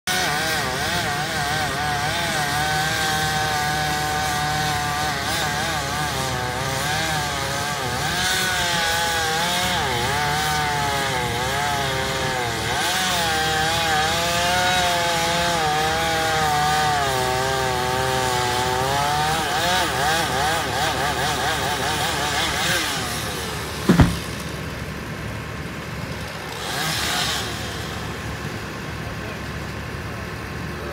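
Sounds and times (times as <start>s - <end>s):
chainsaw cutting wood: 0.1s - 28.9s.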